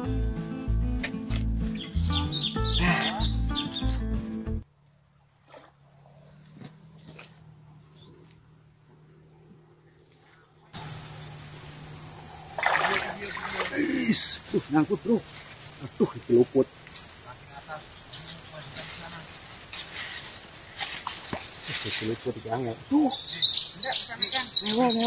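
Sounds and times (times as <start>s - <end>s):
background music with steady beat: 0.0s - 4.6s
insect trilling: 1.2s - 25.0s.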